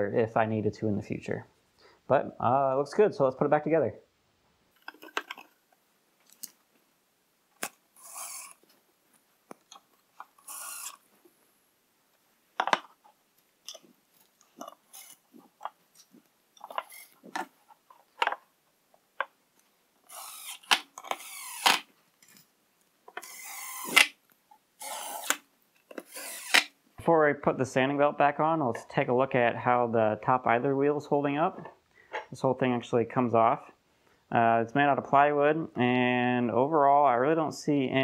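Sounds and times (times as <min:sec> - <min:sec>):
clicks and knocks of parts: 0:04.8 - 0:05.6, 0:12.6 - 0:18.5
impact driver driving screws: 0:08.0 - 0:08.6, 0:10.3 - 0:11.0, 0:20.1 - 0:21.9, 0:23.2 - 0:24.2, 0:24.8 - 0:26.7.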